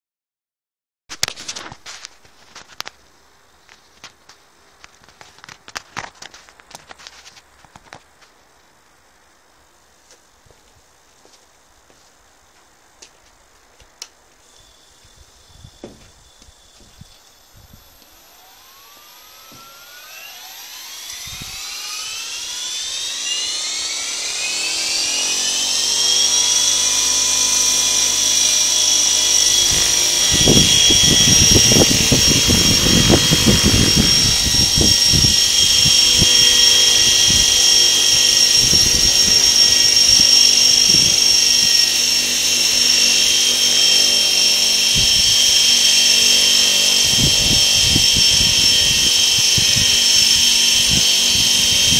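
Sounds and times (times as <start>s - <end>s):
model helicopter rotor whine: 14.3s - 51.9s.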